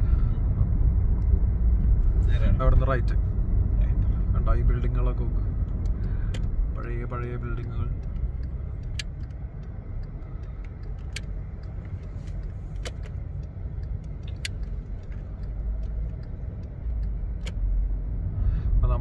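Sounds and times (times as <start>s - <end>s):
car interior rumble: 0.0s - 19.0s
sharp clicks and rattles: 4.7s - 17.7s.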